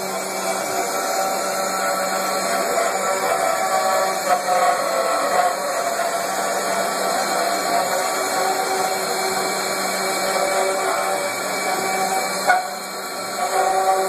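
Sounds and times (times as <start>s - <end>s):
router spindles whining: 0.0s - 14.0s.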